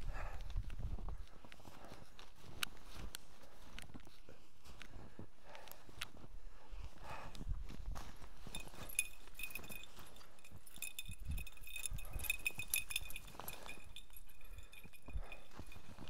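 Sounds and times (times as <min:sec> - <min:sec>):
footsteps crunching in deep snow: 0:00.1 - 0:16.0
light high clinking: 0:08.0 - 0:16.0.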